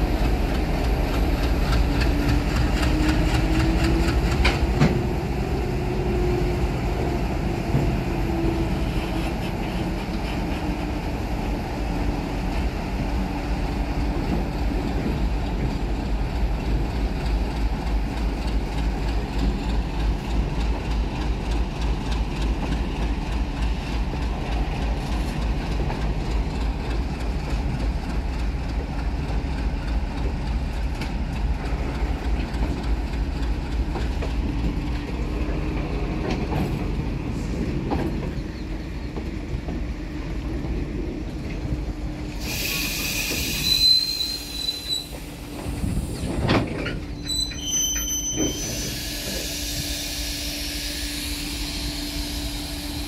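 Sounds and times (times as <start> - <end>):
train wheels rumbling over rails: 0.0 - 53.0
high metallic squeals: 43.5 - 45.1, 47.1 - 50.2.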